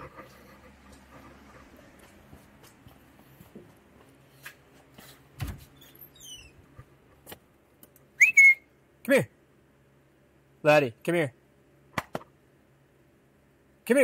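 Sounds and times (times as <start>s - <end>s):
footsteps: 0.0s - 7.5s.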